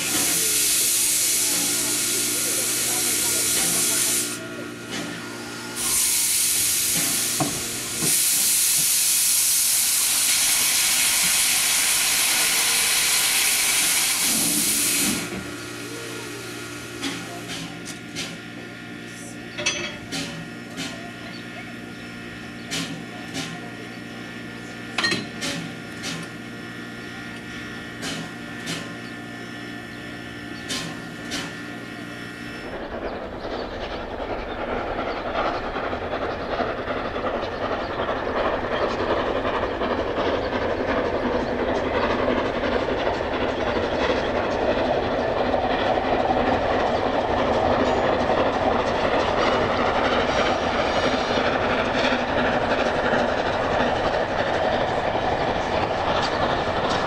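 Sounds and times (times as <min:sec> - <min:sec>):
steam locomotive running: 0:00.0 - 0:57.0
sharp metallic clanks: 0:19.6 - 0:20.4.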